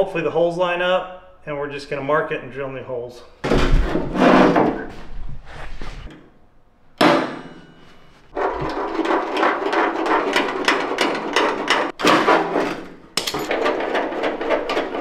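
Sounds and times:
sharp bang: 7.0s - 7.8s.

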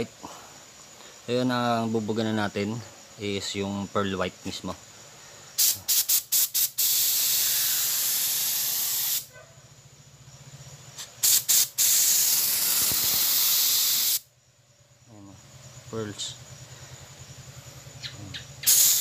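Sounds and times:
spray paint hissing: 5.6s - 9.3s, 11.0s - 14.3s, 18.6s - 19.0s.

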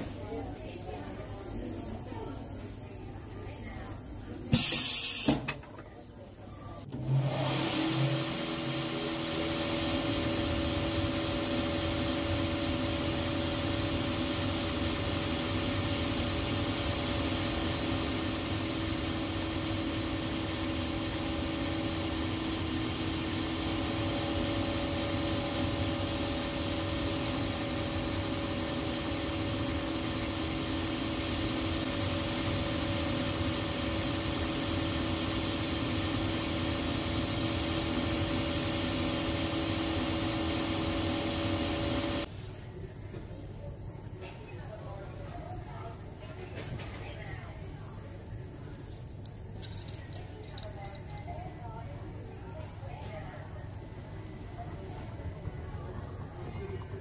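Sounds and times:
machine motor humming and whirring: 6.9s - 42.3s.

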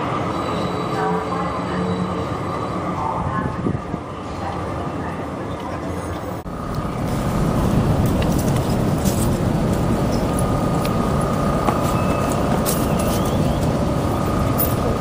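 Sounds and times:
vehicle engine rumble: 5.9s - 15.0s
faint steady whine: 6.5s - 15.0s.

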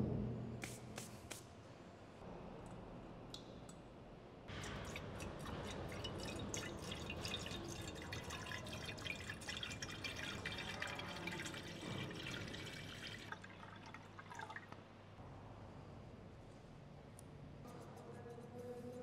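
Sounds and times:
water pouring and splashing: 4.5s - 14.8s.

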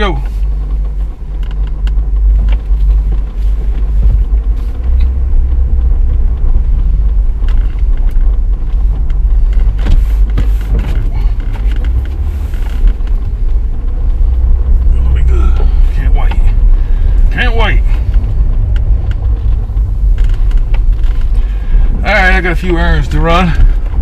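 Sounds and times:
car engine and road rumble: 0.0s - 24.0s.

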